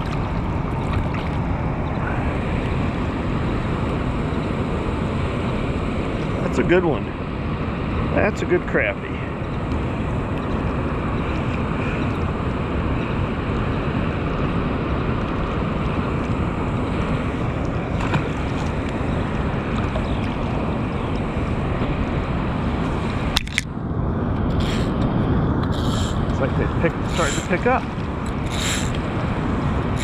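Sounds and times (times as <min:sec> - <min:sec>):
wind on microphone: 0:09.1 - 0:30.0
fast-flowing water rushing: 0:25.8 - 0:30.0.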